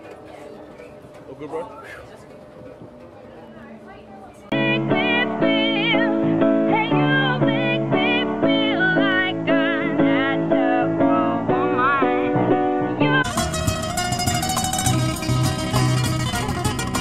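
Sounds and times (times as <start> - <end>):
plucked melody music: 4.5 - 17.0.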